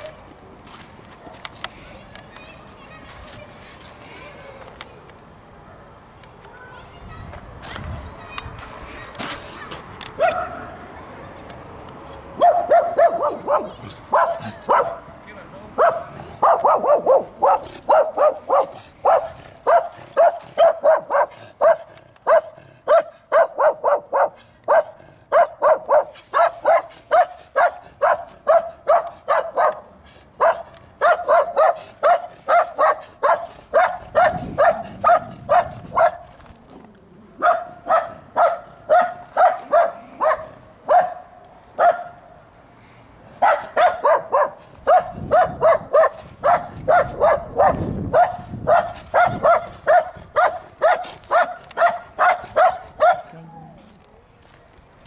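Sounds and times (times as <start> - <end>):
dog barking rapidly: 10.2 - 10.6, 12.4 - 15.0, 15.8 - 36.2, 37.4 - 42.2, 43.4 - 53.3.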